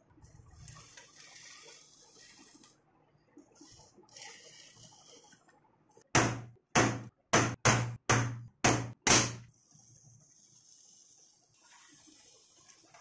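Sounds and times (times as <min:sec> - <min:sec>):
hammer striking metal punch: 0:06.2 - 0:09.5.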